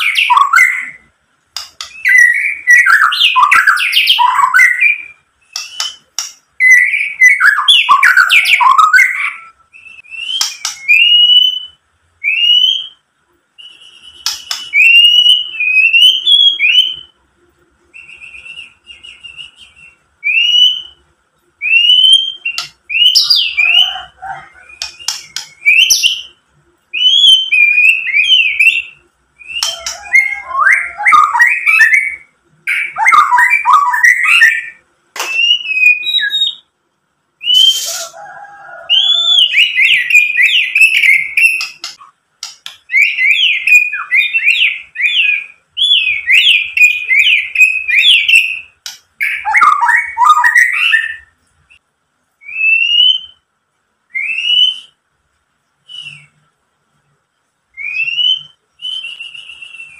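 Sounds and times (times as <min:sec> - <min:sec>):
bird singing whistled notes: 0:01.8 - 0:13.0, 0:13.6 - 0:17.2, 0:17.9 - 0:36.7, 0:38.9 - 0:42.1, 0:42.8 - 0:51.8, 0:52.4 - 0:53.4, 0:54.1 - 0:55.0, 0:55.8 - 0:56.4, 0:57.8 - 0:59.9
bird sharp clicks: 0:05.6 - 0:06.4.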